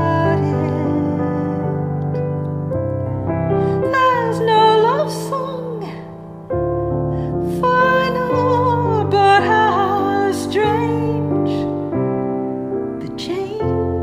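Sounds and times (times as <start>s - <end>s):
woman singing: 0.0s - 2.2s, 3.7s - 6.3s, 7.4s - 12.0s, 12.9s - 14.0s
piano playing slow chords: 0.0s - 14.0s.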